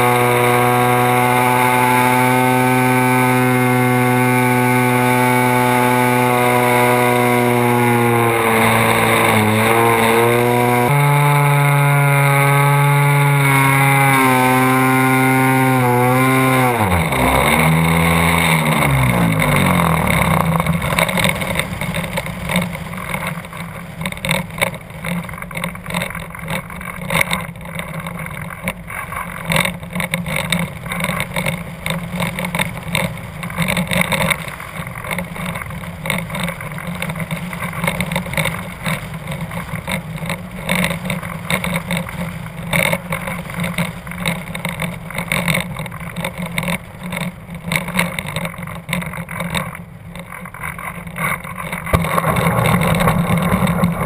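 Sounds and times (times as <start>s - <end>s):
model airplane engine dying: 0.0s - 54.0s.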